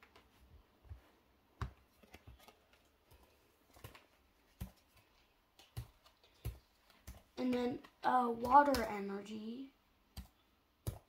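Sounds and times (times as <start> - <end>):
trading cards tapping and rustling: 0.9 - 9.2.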